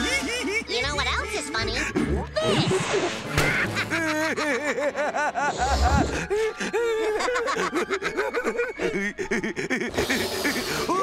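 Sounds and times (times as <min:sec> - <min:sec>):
cartoon characters laughing: 0:02.4 - 0:11.0.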